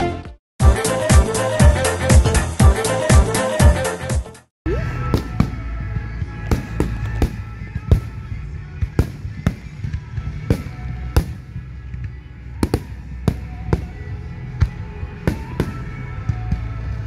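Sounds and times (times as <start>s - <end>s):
music playing: 0.0s - 17.0s.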